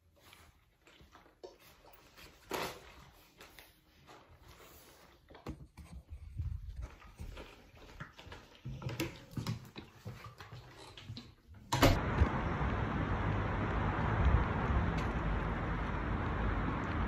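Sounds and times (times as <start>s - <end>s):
outdoor rushing noise with rumble: 12.0s - 17.0s.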